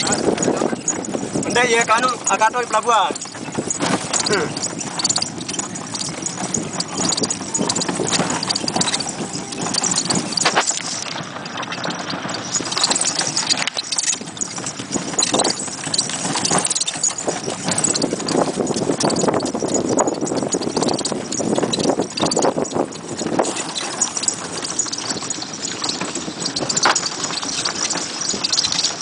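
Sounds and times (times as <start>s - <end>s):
cart rattling: 0.0s - 29.0s
hooves clip-clopping on dirt road: 0.0s - 29.0s.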